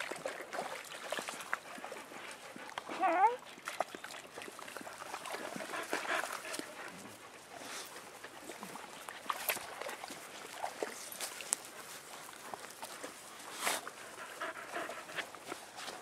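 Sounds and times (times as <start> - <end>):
dog whimpering: 2.9 - 3.4.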